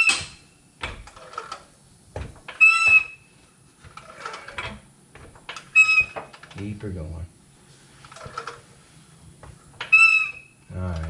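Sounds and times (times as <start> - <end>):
jack squeak: 0.0 - 1.6, 2.5 - 4.8, 5.6 - 6.6, 9.8 - 10.7
hydraulic floor jack pumping: 0.0 - 3.2, 3.8 - 6.6, 8.0 - 8.7.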